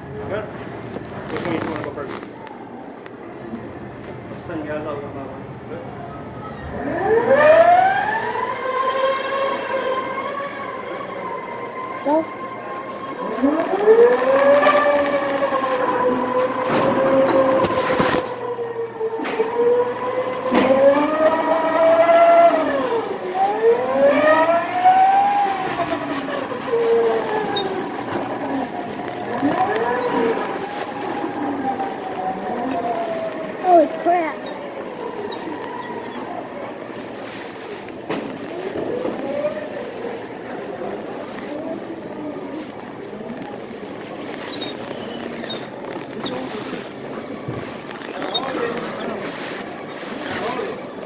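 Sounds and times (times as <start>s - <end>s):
go-kart motor whining: 6.7s - 37.2s.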